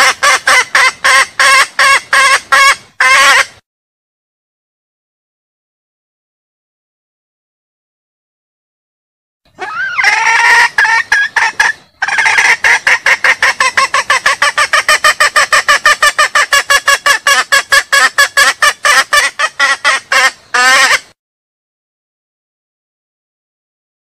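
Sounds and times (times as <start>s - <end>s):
hen clucking calls: 0.0s - 3.6s, 9.5s - 21.2s.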